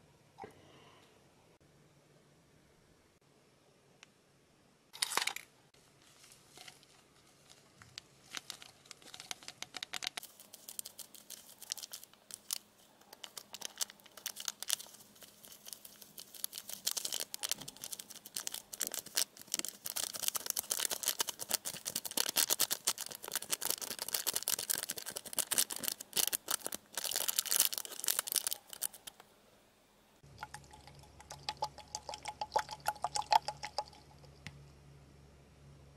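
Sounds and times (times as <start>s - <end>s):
crinkling and pattering powder: 5.0s - 29.3s
plastic packet ripping: 8.3s - 29.2s.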